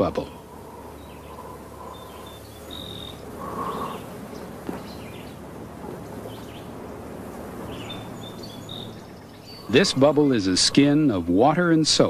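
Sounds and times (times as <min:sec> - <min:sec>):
soft steady hiss: 0:00.0 - 0:12.0
high wildlife chirps: 0:00.2 - 0:10.9.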